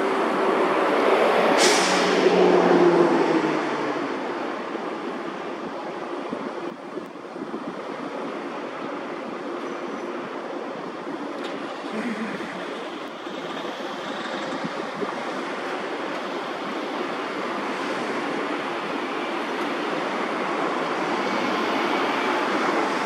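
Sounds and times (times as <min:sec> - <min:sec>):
cars driving past: 0:00.0 - 0:05.4, 0:11.4 - 0:23.0.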